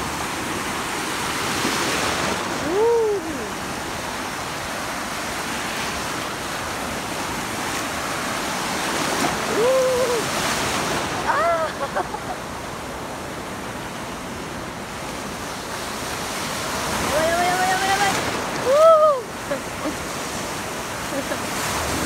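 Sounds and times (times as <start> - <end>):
small waves breaking: 0.0 - 22.0
person exclaiming: 2.6 - 3.6, 9.5 - 10.3, 11.2 - 11.9, 18.6 - 19.3.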